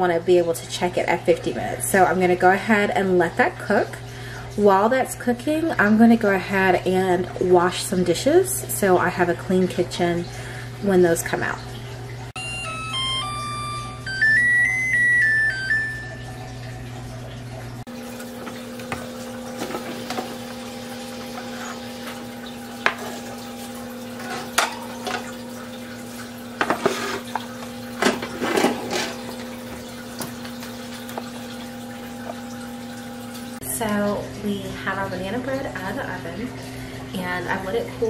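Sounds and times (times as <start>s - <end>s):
steady hum with held tones: 0.0s - 38.0s
running water: 0.8s - 38.0s
melodic run of notes: 12.4s - 19.5s
dishes clinking in a sink: 18.4s - 20.6s, 21.2s - 31.4s.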